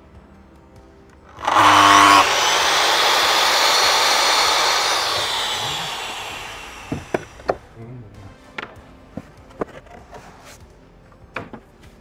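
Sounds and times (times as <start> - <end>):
mitre saw whine: 1.3 - 7.5
saw blade cutting wood: 1.3 - 7.5.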